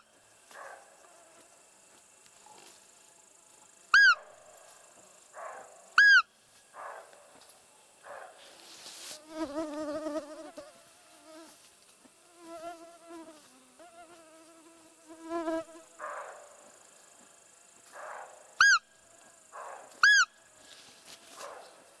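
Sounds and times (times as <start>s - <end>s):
deer call squeaks: 4.0s - 4.2s, 6.0s - 6.2s, 18.6s - 18.8s, 20.0s - 20.3s
fly buzzing: 8.8s - 16.0s.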